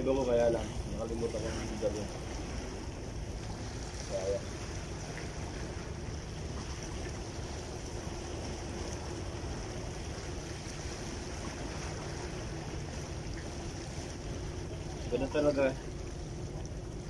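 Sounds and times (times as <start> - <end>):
faint steady hum: 0.0 - 17.0
wind: 0.0 - 17.0.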